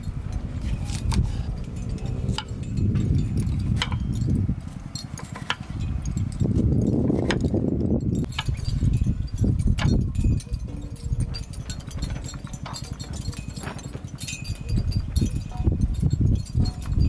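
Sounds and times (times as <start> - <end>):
low rumble: 0.0 - 12.6.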